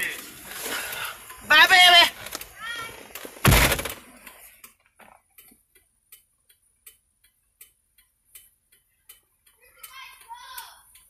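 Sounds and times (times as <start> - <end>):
turn signal clicking: 4.2 - 11.0.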